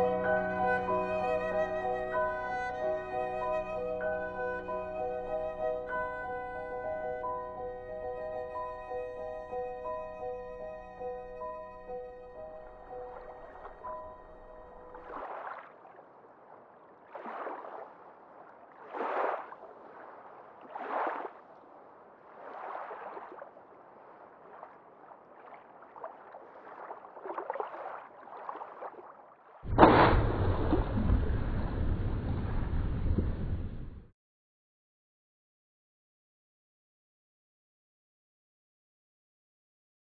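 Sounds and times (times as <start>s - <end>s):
water lapping against boat hull: 14.7s - 34.0s
loud rushing noise with low rumble: 29.7s - 34.1s.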